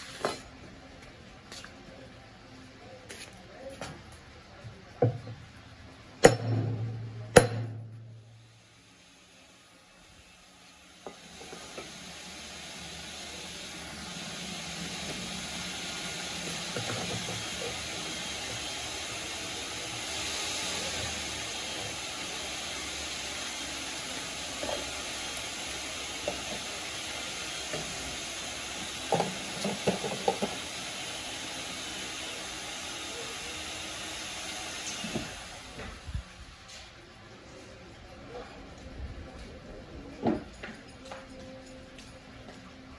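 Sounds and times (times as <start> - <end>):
steady hiss: 7.3 - 36.8.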